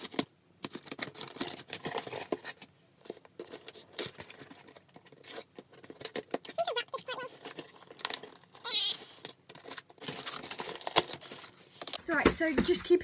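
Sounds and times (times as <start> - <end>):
cardboard box crinkling and knocking: 0.0 - 13.0
tool slitting packing tape: 9.0 - 12.0.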